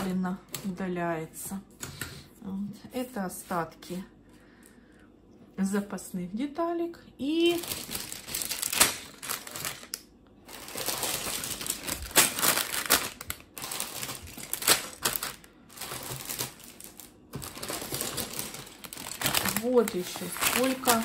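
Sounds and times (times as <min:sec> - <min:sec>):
plastic bags crinkling: 0:07.4 - 0:21.0.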